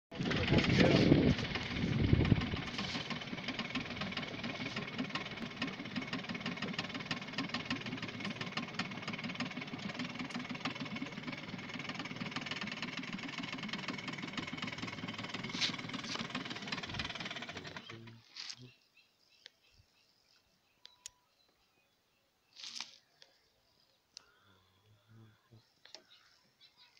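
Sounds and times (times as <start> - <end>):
small engine knocking: 0.1 - 18.1.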